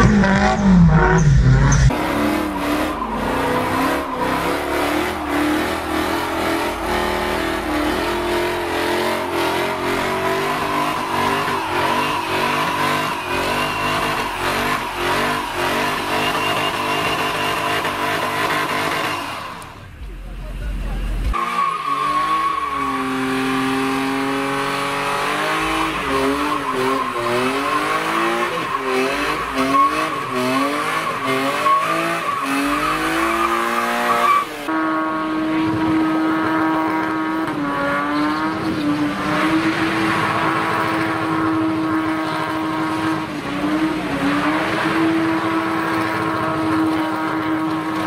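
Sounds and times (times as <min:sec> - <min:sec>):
car engines revving: 0:00.0 - 0:48.0
tyres squealing: 0:02.0 - 0:19.6, 0:25.0 - 0:34.7.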